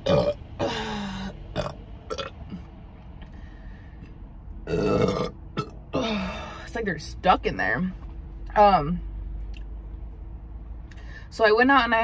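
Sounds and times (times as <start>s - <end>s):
woman burping: 0.0s - 2.7s, 4.7s - 6.6s.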